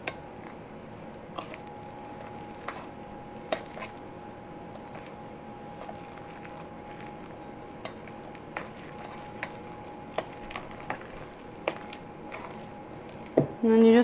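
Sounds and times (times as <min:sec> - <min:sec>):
faint steady hum: 0:00.0 - 0:14.0
fork stirring batter in bowl: 0:01.3 - 0:04.0, 0:05.8 - 0:13.4.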